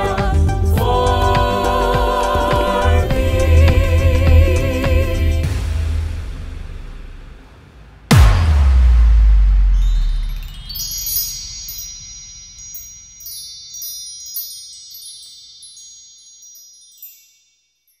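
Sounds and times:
deep bass hit: 0:02.9 - 0:12.0
wind chimes ringing: 0:09.8 - 0:18.0.

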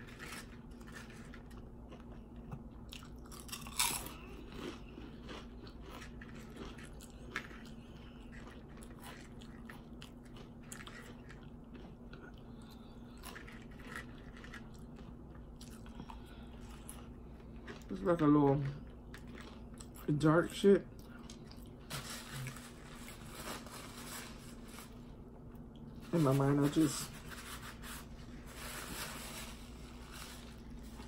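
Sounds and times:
chewing potato chips: 0:00.0 - 0:25.9
steady low hum: 0:00.0 - 0:31.0
crisp crunches: 0:02.9 - 0:20.1, 0:26.0 - 0:31.0.

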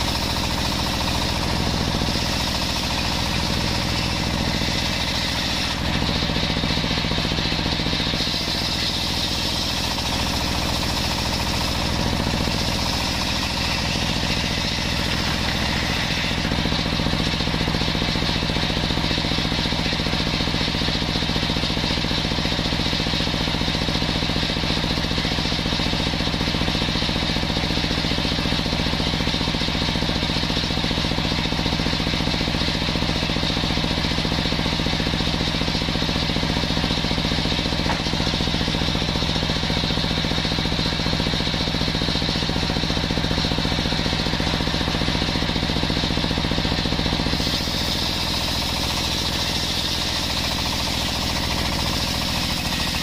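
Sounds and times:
table saw ripping wood: 0:00.0 - 0:20.7, 0:36.4 - 0:40.4, 0:47.0 - 0:53.0.

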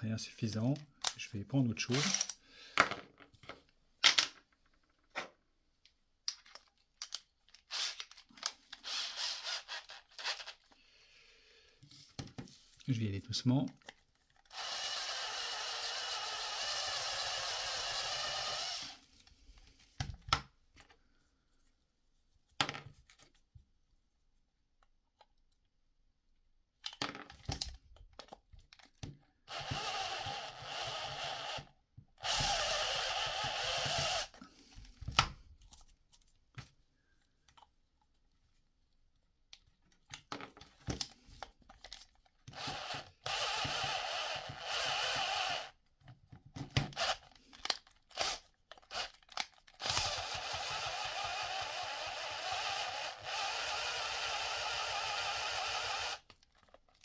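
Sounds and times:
drill bit grinding plastic: 0:08.8 - 0:10.6, 0:14.4 - 0:19.0, 0:29.5 - 0:34.4, 0:42.4 - 0:56.7
cordless drill motor whine: 0:14.5 - 0:19.0, 0:29.5 - 0:34.3, 0:42.5 - 0:47.2, 0:49.8 - 0:56.2.

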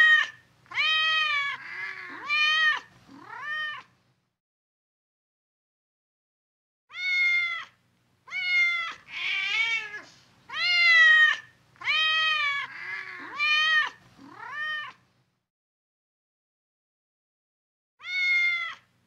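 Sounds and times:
cat meowing: 0:00.0 - 0:03.9, 0:06.9 - 0:15.0, 0:18.0 - 0:18.9.

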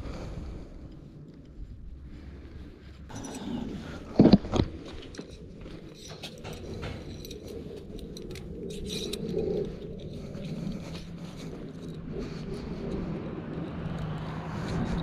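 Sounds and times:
metal bolt clinking and scraping: 0:03.1 - 0:12.0.

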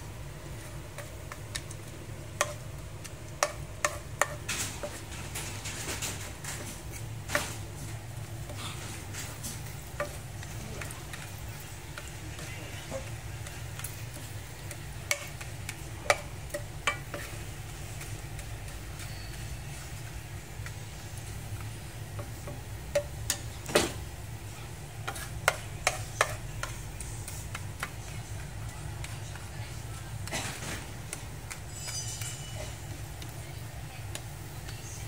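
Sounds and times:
spatula stirring rice in oil: 0:00.0 - 0:35.0
spatula knocking against pan: 0:03.4 - 0:05.0, 0:12.0 - 0:19.5, 0:22.1 - 0:23.9, 0:25.0 - 0:26.8, 0:27.4 - 0:28.2.

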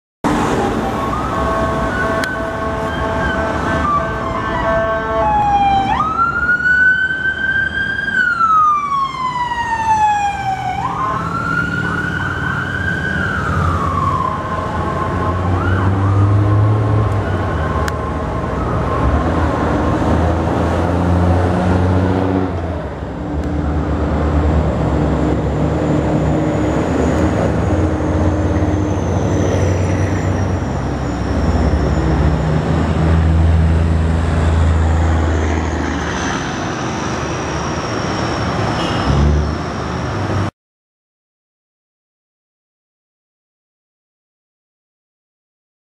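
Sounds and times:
surrounding traffic: 0:00.2 - 0:40.6
electronic siren wailing: 0:00.6 - 0:19.7.

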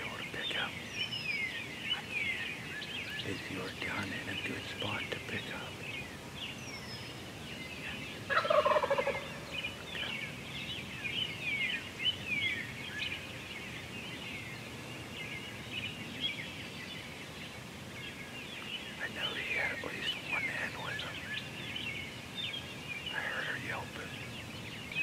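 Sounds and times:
birds chirping and singing: 0:00.0 - 0:25.0
turkey gobbling: 0:08.3 - 0:09.3.

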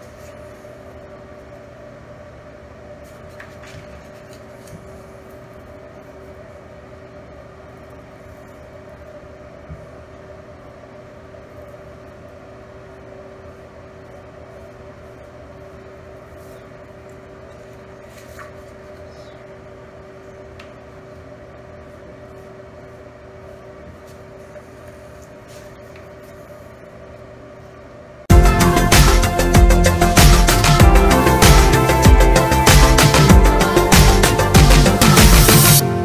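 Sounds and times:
low room hum: 0:00.0 - 0:36.0
loud music: 0:28.3 - 0:36.0.

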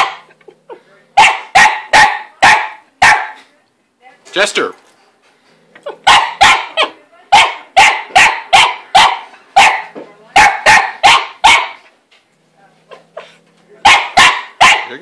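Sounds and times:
small dog barking sharply: 0:01.2 - 0:03.4, 0:06.1 - 0:11.8, 0:13.8 - 0:15.0.

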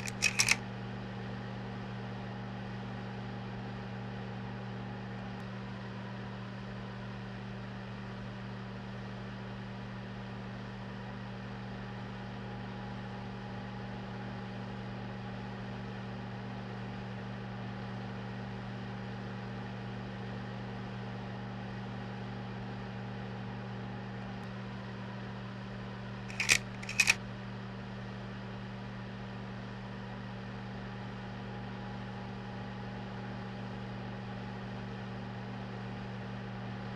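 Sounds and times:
projector hum with hiss: 0:00.0 - 0:00.6, 0:26.3 - 0:27.2
sharp mechanical clicks: 0:00.0 - 0:00.6, 0:26.3 - 0:27.2.

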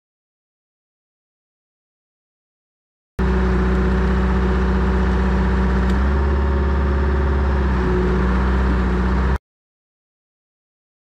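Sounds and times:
diesel engine running: 0:03.2 - 0:09.4
excavator tracks moving: 0:03.2 - 0:09.4.

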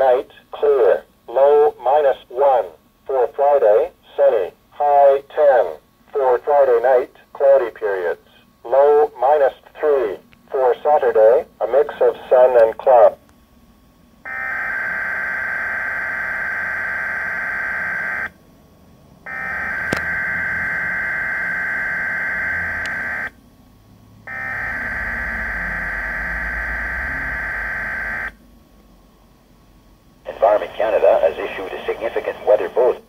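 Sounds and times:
radio data buzz bursts: 0:19.3 - 0:23.4, 0:30.3 - 0:33.0.

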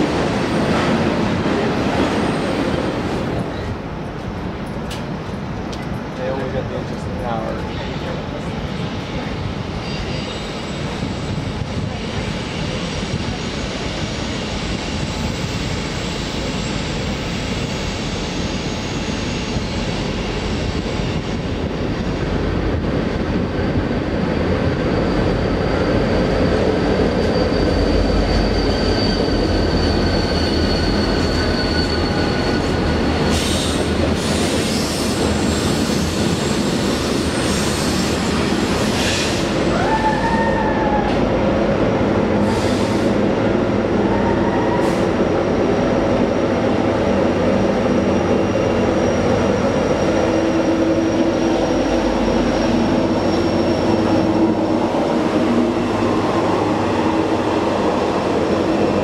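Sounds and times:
freight train rumble: 0:00.0 - 0:59.0
wheel squeals: 0:24.8 - 0:36.7.

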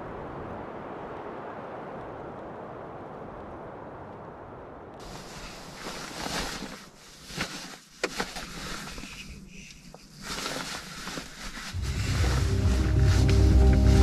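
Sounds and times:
jacket fabric rustling: 0:05.0 - 0:14.0.

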